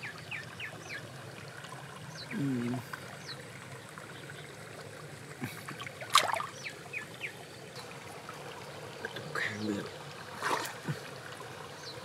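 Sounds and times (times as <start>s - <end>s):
stream water trickling: 0.0s - 12.0s
hands splashing in water: 6.0s - 6.5s.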